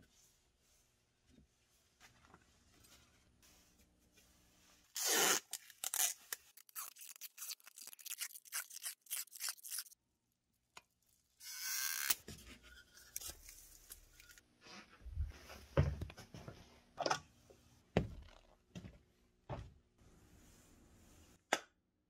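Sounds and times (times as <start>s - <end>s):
tape rustling: 4.9s - 10.0s
tape tearing: 5.0s - 10.0s, 11.4s - 12.3s.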